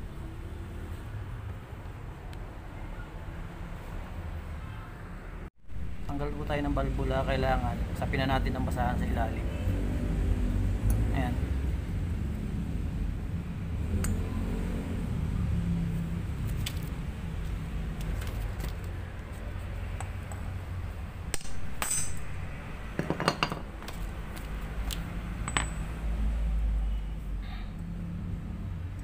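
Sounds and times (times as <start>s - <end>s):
metallic clinks of tools: 21.4s - 22.3s.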